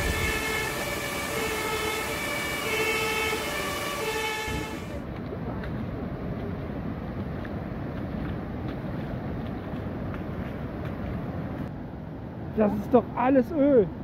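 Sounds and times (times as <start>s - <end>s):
two-tone siren: 0.0s - 5.0s
rushing floodwater: 0.0s - 14.0s.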